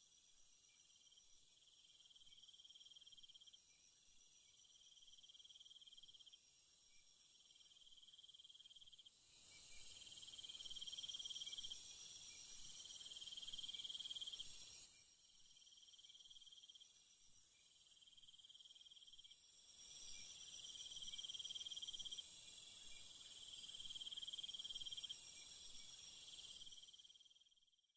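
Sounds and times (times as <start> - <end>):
high insect hiss: 0.2 - 3.6, 4.5 - 27.5
insects trilling: 7.6 - 15.0, 17.7 - 27.4.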